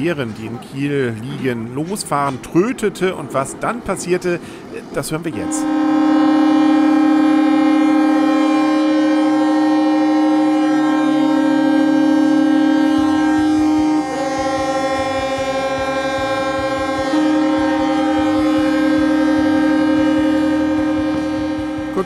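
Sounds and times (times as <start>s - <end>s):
second ship horn: 5.3s - 22.0s
ship horn blast: 5.3s - 22.0s.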